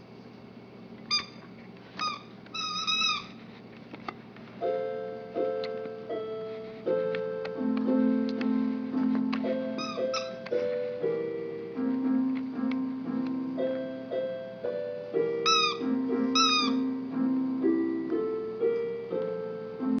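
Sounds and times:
short high squeaks: 1.1 - 3.5, 9.6 - 10.6
piano notes and chords: 4.5 - 20.0.

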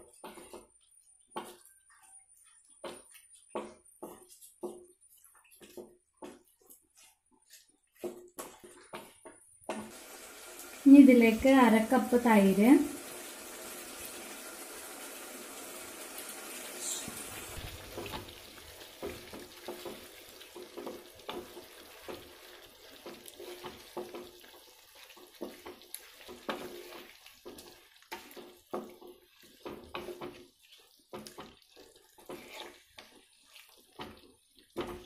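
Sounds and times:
wooden spatula scraping a pan: 0.0 - 10.0, 16.8 - 35.0
chicken sizzling in a pan: 9.7 - 35.0.

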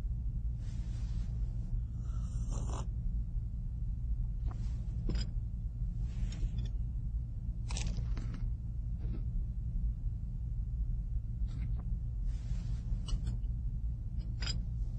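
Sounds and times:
steady low hum: 0.0 - 14.9
breathing: 0.6 - 2.9, 6.0 - 6.6.

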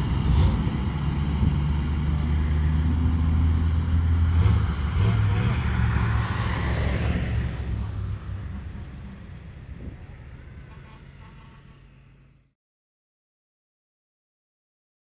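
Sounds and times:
fire truck engine rumbling: 0.0 - 12.5.

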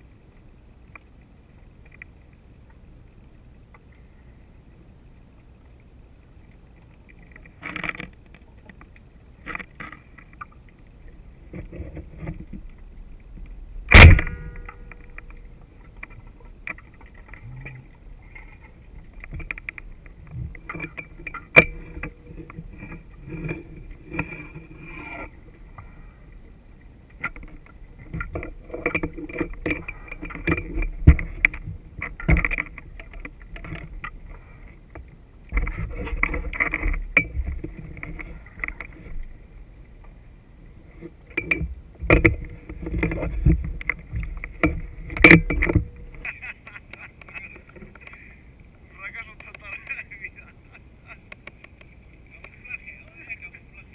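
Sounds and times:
clicks knocks and scraping underwater: 0.8 - 4.1, 5.6 - 50.0, 51.1 - 53.4
speargun firing underwater: 13.9 - 15.3.

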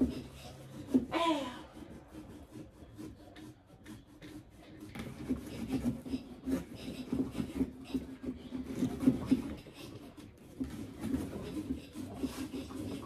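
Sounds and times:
blade sawing through pumpkin: 0.0 - 13.0.

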